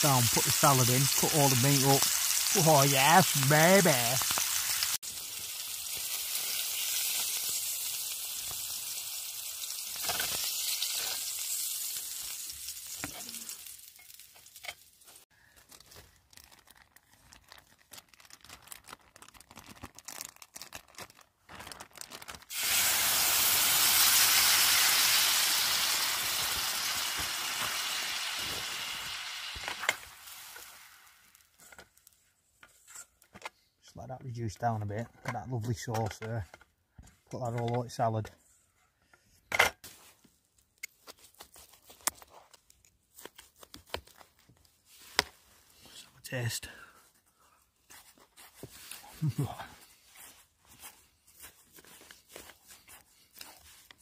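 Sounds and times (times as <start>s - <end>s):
steak sizzling in a frying pan: 0.0s - 15.0s, 22.5s - 31.4s.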